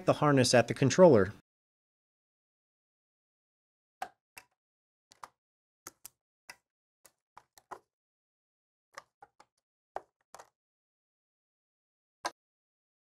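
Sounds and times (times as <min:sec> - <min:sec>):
plastic connector clicks and taps: 0:04.0 - 0:07.9.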